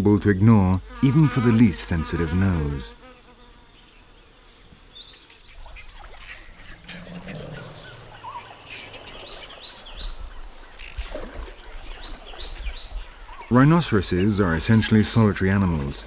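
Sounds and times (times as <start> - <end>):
birds chirping: 0.0 - 16.0
flies buzzing: 0.4 - 16.0
low bird call: 5.1 - 13.6.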